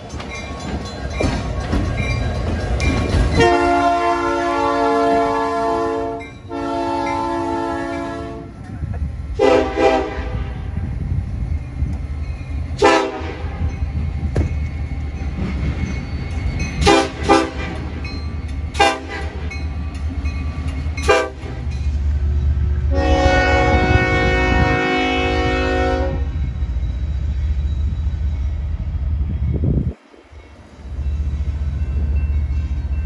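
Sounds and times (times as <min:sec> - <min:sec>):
low rumble of locomotives: 0:00.0 - 0:33.0
locomotive air horn: 0:03.4 - 0:08.6, 0:09.4 - 0:10.7, 0:12.8 - 0:13.6, 0:16.8 - 0:17.8, 0:18.8 - 0:19.4, 0:21.0 - 0:21.6, 0:22.9 - 0:26.3.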